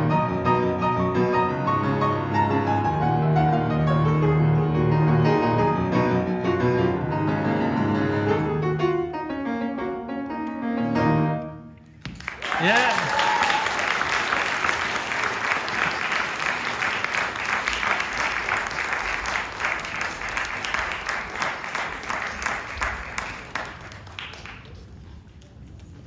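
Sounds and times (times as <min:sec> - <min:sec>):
audience applauding: 0:12.0 - 0:25.0
person shouting yeah: 0:12.5 - 0:13.7.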